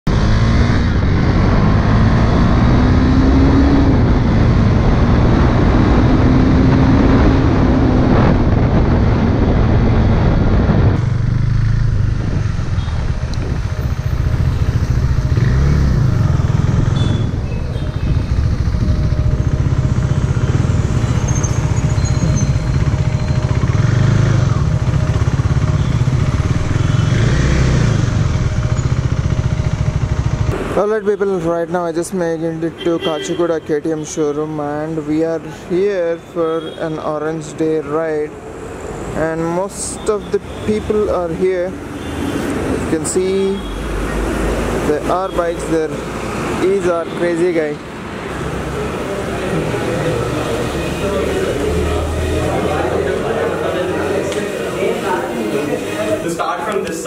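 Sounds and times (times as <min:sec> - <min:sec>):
wind rush: 0:03.5 - 0:15.5
motorcycle engine running: 0:11.0 - 0:30.7.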